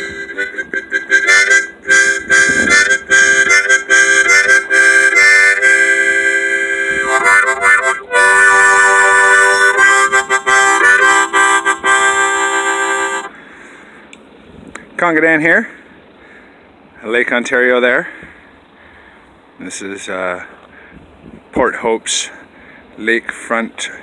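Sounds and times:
harmonica playing a tune: 0:00.0 - 0:13.4.

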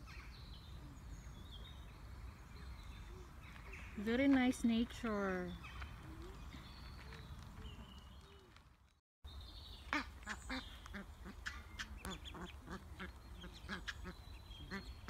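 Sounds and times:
geese and goslings calling: 0:09.9 - 0:15.0.

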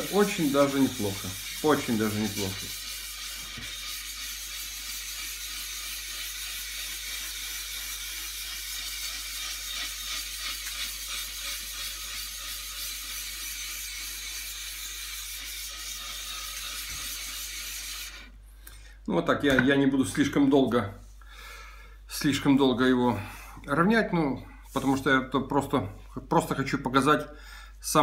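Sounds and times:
gritty scraping on glass: 0:00.0 - 0:07.7.

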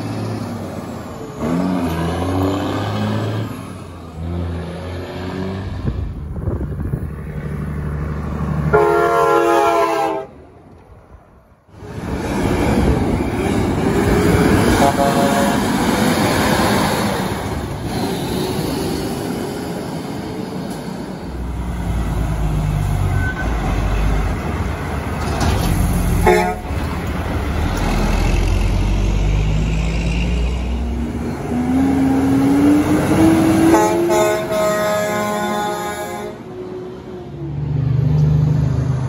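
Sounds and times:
trucks passing with diesel rumble: 0:00.0 - 0:39.0
air horn blast: 0:08.7 - 0:10.3, 0:14.7 - 0:15.7, 0:26.2 - 0:26.7, 0:33.6 - 0:36.5.

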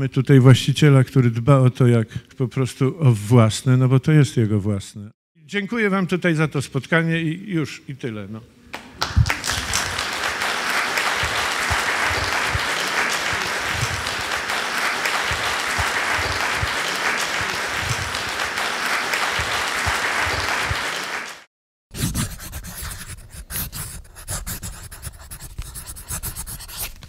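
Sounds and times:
audience applauding: 0:08.8 - 0:21.5.

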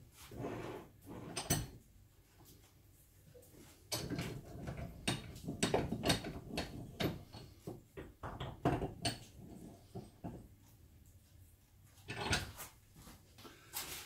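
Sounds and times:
metal clanks and knocks: 0:03.9 - 0:10.5, 0:12.0 - 0:12.7.

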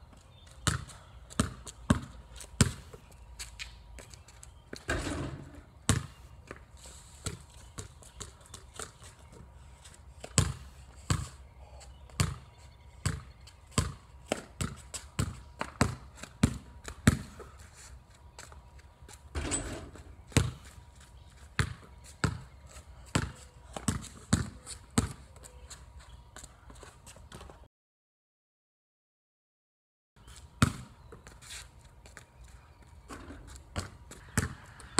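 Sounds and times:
basketball bouncing on wet concrete: 0:00.6 - 0:03.0, 0:05.9 - 0:06.6, 0:10.3 - 0:11.4, 0:12.2 - 0:12.4, 0:13.0 - 0:17.4, 0:20.3 - 0:20.6, 0:21.6 - 0:22.4, 0:23.1 - 0:25.2, 0:30.6 - 0:30.9, 0:33.8 - 0:34.9
ball hitting rim and backboard: 0:04.9 - 0:06.1, 0:19.4 - 0:20.6.

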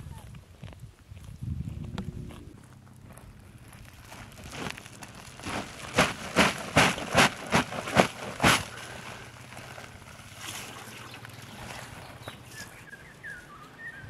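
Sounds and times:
sack shaking with rustling: 0:04.0 - 0:10.8.

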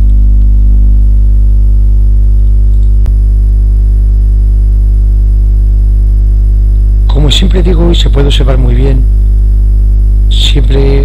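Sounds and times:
electrical hum with deep buzz: 0:00.0 - 0:11.0
sharp click: 0:02.7 - 0:03.1.

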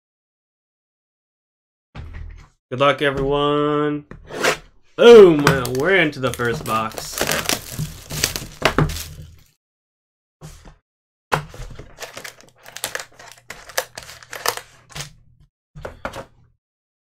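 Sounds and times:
card packs crinkling and rustling: 0:05.0 - 0:09.5, 0:11.8 - 0:15.1.

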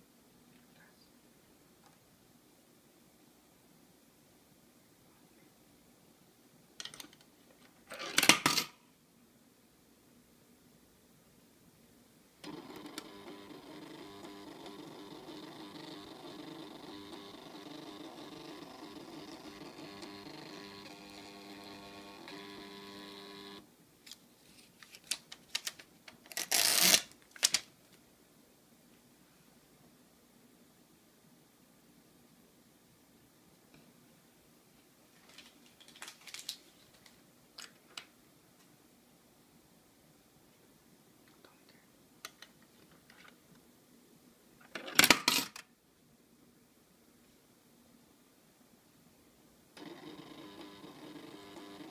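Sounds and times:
printer paper-feed motor whining: 0:12.4 - 0:23.6, 0:49.8 - 0:51.9
paper crinkling and clicking: 0:24.0 - 0:27.7, 0:35.2 - 0:38.1
receipt paper ripping: 0:26.3 - 0:27.6
coin clicks in slot: 0:44.8 - 0:45.6.

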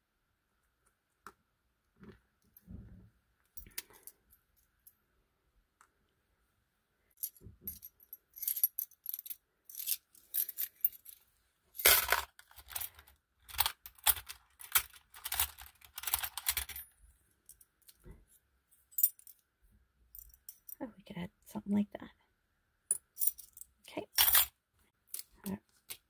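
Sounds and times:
small metal gears clinking: 0:11.8 - 0:16.9.

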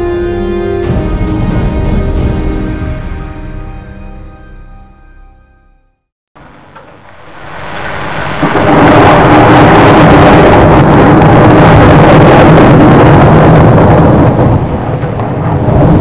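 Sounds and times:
thunder rumbling: 0:06.7 - 0:16.0.

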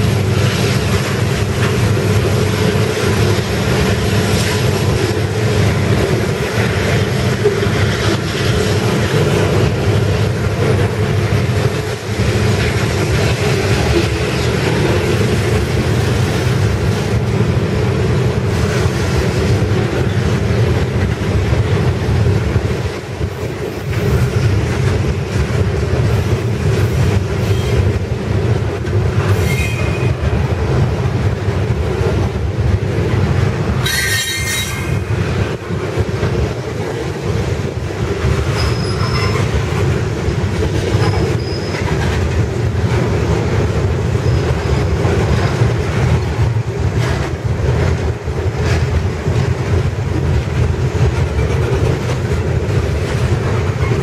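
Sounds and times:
freight train wheels rumbling: 0:00.0 - 0:54.0
high wheel squeal: 0:29.3 - 0:30.2, 0:33.8 - 0:35.0, 0:38.5 - 0:39.5, 0:41.0 - 0:41.9.

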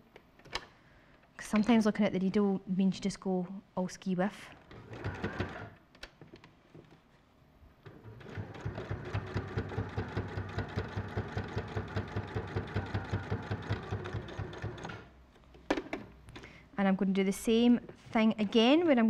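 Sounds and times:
sewing machine stitching: 0:04.7 - 0:05.8, 0:07.9 - 0:15.2.

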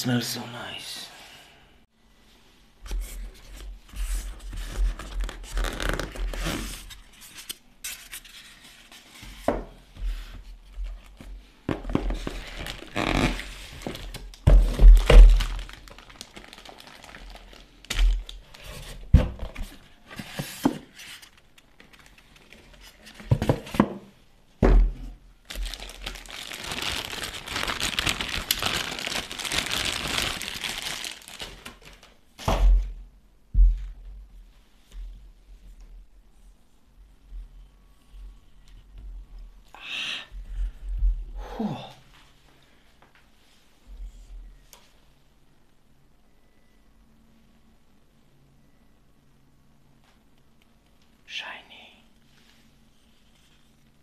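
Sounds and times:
plastic bag crinkling: 0:12.4 - 0:18.6, 0:25.4 - 0:32.1.

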